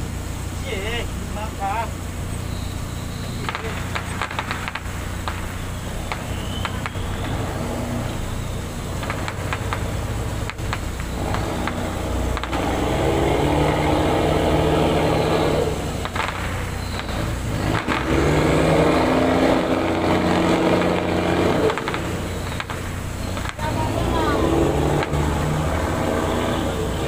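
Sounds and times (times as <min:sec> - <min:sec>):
ship engine humming: 0:00.0 - 0:27.0
sharp clicks: 0:03.2 - 0:08.3, 0:08.9 - 0:13.1, 0:15.0 - 0:23.8.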